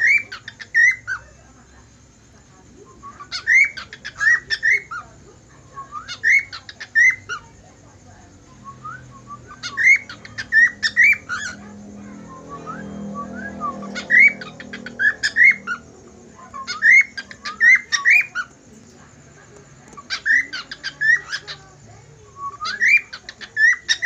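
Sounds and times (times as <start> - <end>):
cockatiel whistling: 12.2 - 15.8, 22.4 - 24.0.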